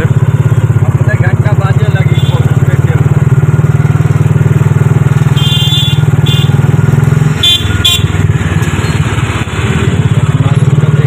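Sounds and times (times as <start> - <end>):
auto-rickshaw engine chugging: 0.0 - 11.0
vehicle horns beeping: 1.9 - 2.7, 5.2 - 6.8, 7.4 - 8.3.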